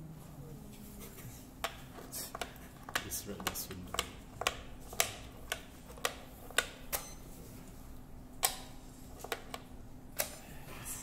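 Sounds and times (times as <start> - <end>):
plastic discs clicking on board: 1.6 - 6.8, 8.4 - 9.7.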